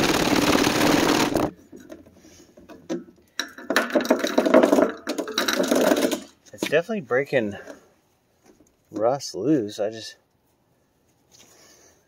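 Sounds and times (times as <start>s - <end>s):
screws rattling in metal tank: 3.8s - 6.4s.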